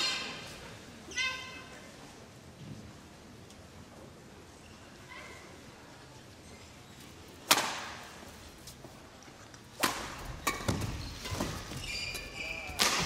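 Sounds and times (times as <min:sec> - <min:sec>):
racket hitting shuttlecock: 0:07.4 - 0:08.0, 0:09.8 - 0:11.5, 0:12.8 - 0:13.0
shoes squeaking on court floor: 0:10.3 - 0:13.0.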